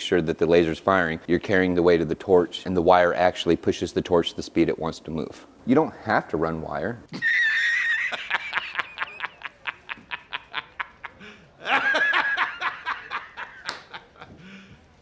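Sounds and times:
man laughing hysterically: 0:07.1 - 0:14.6.

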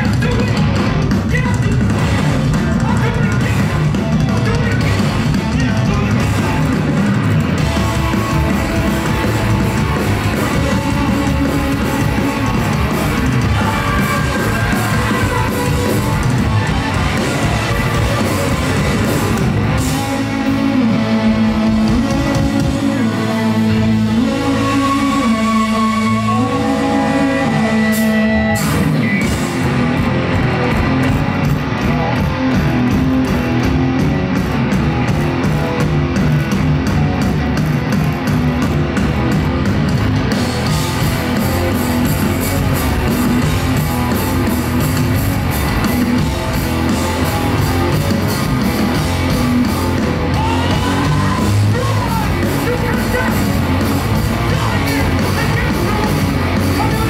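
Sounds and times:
bass guitar: 0:00.0 - 0:57.0
distorted electric guitars: 0:00.0 - 0:57.0
drums and cymbals: 0:00.0 - 0:57.0
shouted vocals: 0:07.9 - 0:29.2, 0:50.0 - 0:57.0.

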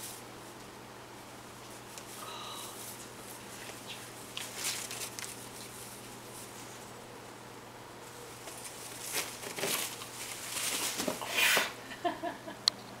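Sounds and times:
palm fronds rustling: 0:01.3 - 0:07.0, 0:08.0 - 0:11.6.

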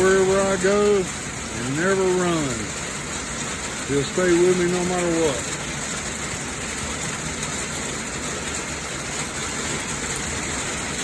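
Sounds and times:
steady rain hiss: 0:00.0 - 0:11.0.

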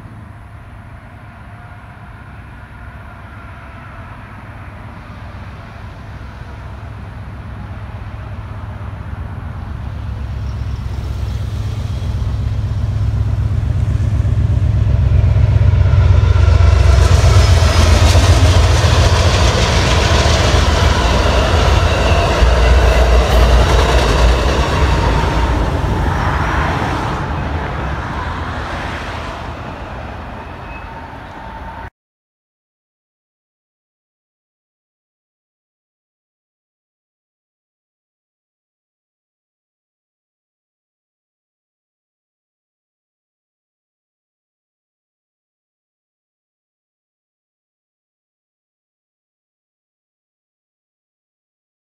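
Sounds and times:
train rumbling over bridge: 0:00.0 - 0:31.9
train wheel and rail noise: 0:00.0 - 0:31.9.

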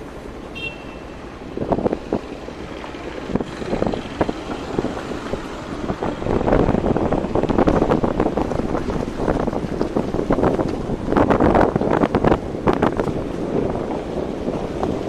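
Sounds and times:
heavy construction vehicles rumbling: 0:00.0 - 0:15.0
wind buffeting microphone: 0:01.2 - 0:15.0.

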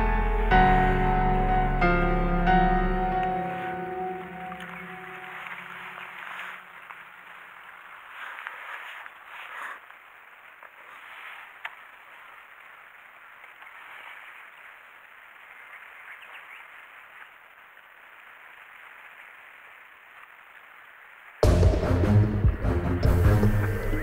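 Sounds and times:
hiss of water and air: 0:03.4 - 0:21.4.

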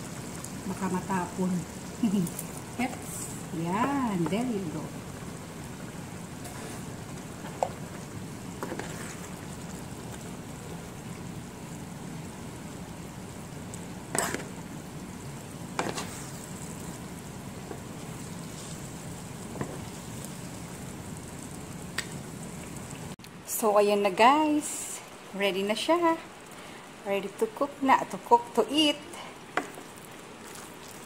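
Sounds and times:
utensil stirring pasta in pan: 0:01.8 - 0:11.4, 0:13.2 - 0:20.9, 0:29.4 - 0:31.0.

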